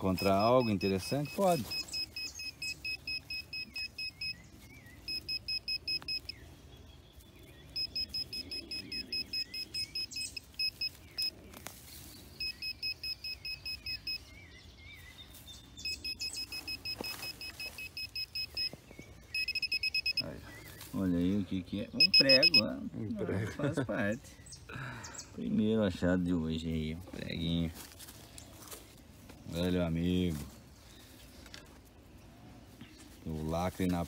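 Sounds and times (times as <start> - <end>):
pinpointer beeping rapidly: 0.0 - 4.4, 5.1 - 6.4, 7.8 - 11.3, 12.4 - 14.2, 15.8 - 18.7, 19.3 - 20.3, 21.9 - 22.7.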